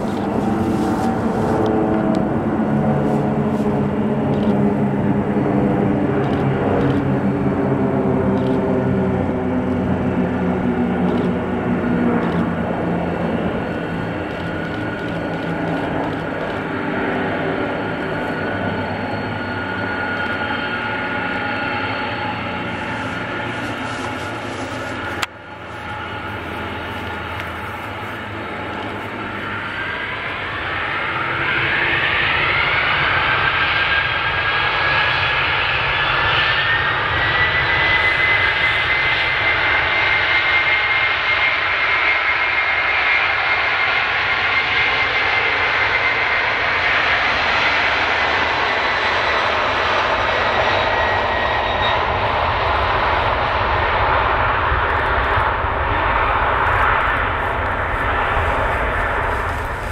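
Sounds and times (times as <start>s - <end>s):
jet engines spooling up: 0.0s - 59.9s.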